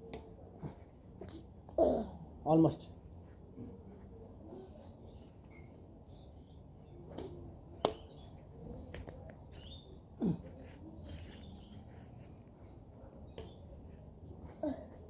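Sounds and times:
faint bird chirps: 4.1s - 14.9s.

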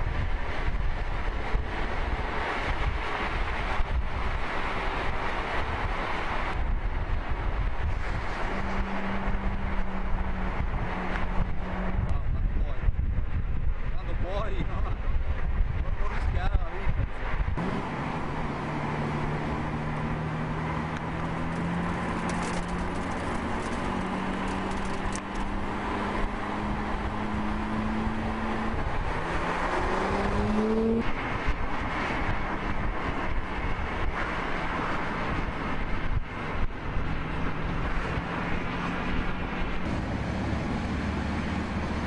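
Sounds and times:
car engines running: 0.0s - 42.0s
road and wind noise: 0.0s - 42.0s
engine revving: 17.5s - 42.0s.

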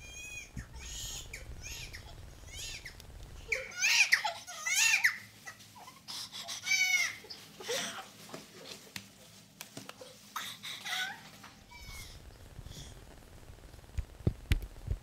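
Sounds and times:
newborn baby crying: 0.0s - 8.2s, 10.3s - 12.2s.

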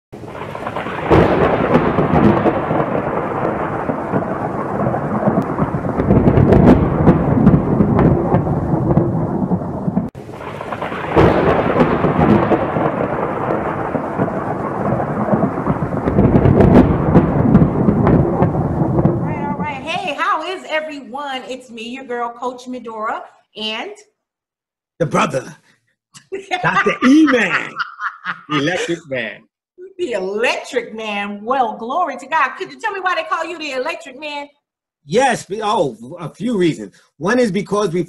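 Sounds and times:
rain: 0.2s - 20.1s
sharp thunder cracks: 0.2s - 20.2s
rumbling thunder: 0.2s - 20.4s.

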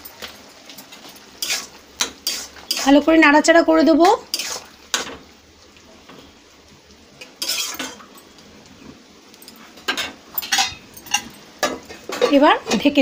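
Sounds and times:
metal spatula scraping a pan: 1.3s - 3.1s, 3.9s - 5.2s, 7.2s - 8.1s, 9.8s - 13.0s.

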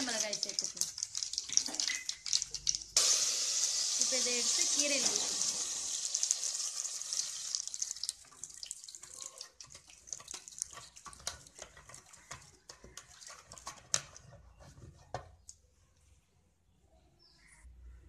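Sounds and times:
wet squelches of mashing greens: 0.0s - 3.0s, 7.5s - 15.7s
hot oil sizzling: 0.0s - 11.8s.

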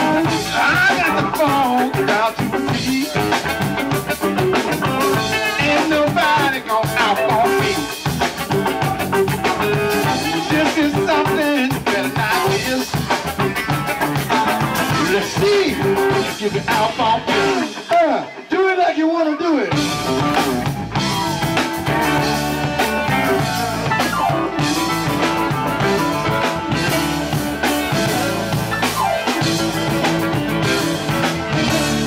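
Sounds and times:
funk band playing: 0.0s - 32.0s.

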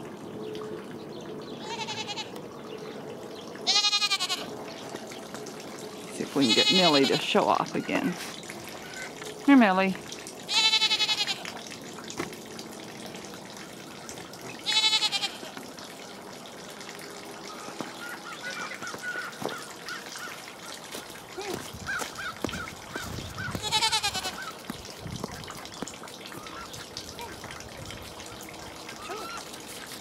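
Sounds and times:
goat bleating: 1.6s - 2.3s, 3.7s - 4.5s, 6.4s - 7.2s, 10.5s - 11.5s, 14.6s - 15.6s, 23.5s - 24.6s.

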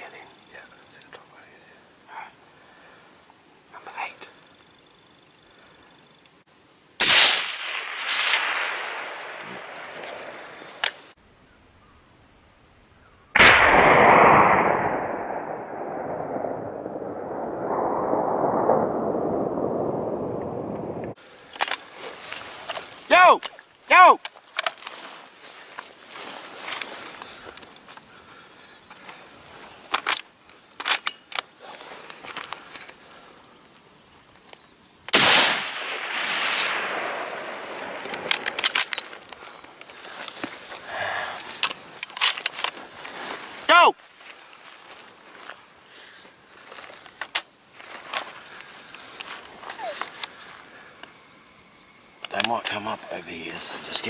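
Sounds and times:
rifle shot: 7.0s - 10.9s, 13.4s - 18.8s, 35.1s - 38.9s
rolling echo: 7.0s - 10.9s, 13.4s - 21.2s, 35.2s - 39.4s.

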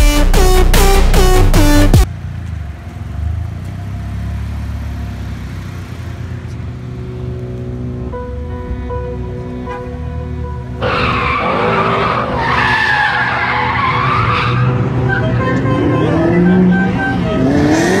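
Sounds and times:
car engine revving: 0.0s - 18.0s
tyres squealing: 10.8s - 17.5s.

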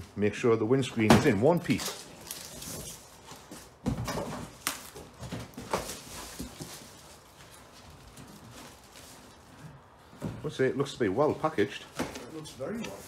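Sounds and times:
cardboard scraping and rustling: 1.7s - 10.6s.

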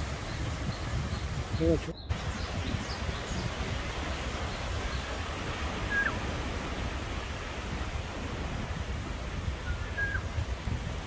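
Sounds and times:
wind rumble on microphone: 0.0s - 11.0s
wind rustling leaves: 0.0s - 11.0s
bird chirp: 0.2s - 5.2s, 5.8s - 6.9s.

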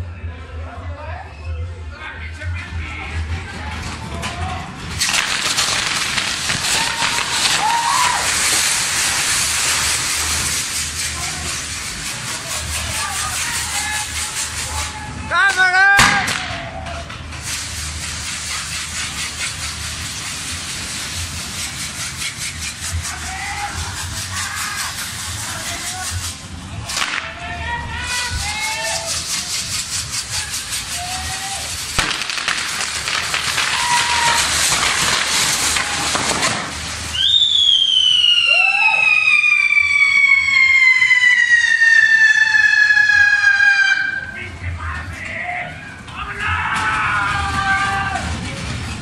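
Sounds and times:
fireworks hissing and crackling: 3.0s - 45.2s.

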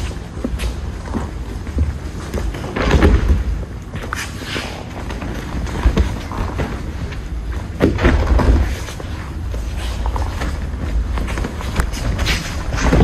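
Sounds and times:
body thudding on mats: 5.0s - 9.2s, 10.1s - 13.0s.

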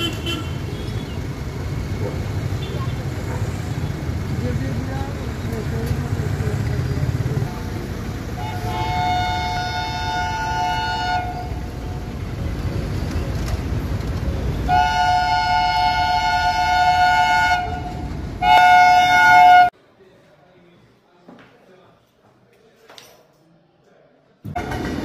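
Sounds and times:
low train rumble: 0.0s - 19.7s
two-tone locomotive horn blasts: 8.4s - 11.9s, 14.6s - 19.7s.

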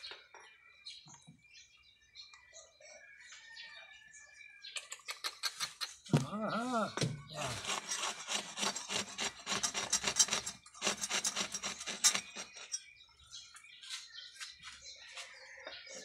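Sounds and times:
hand saw cutting horn: 7.3s - 12.8s.

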